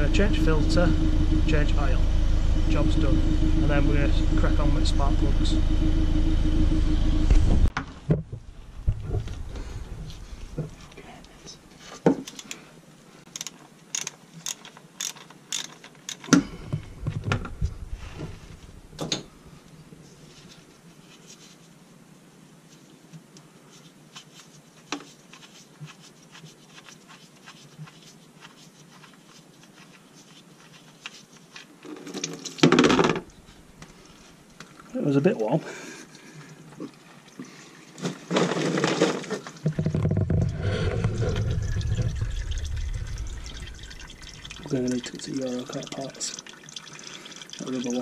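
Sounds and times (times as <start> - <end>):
low bumping rumble: 0.0 - 11.7, 16.5 - 19.7, 39.7 - 45.2
ratchet clicks: 13.3 - 16.4
oil pouring into drain tray: 37.9 - 48.0.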